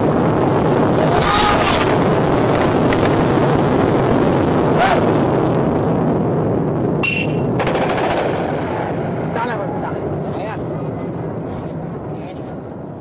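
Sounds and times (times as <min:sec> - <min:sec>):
explosion rumble: 0:00.0 - 0:13.0
sharp cracks: 0:00.5 - 0:03.8, 0:06.6 - 0:08.9.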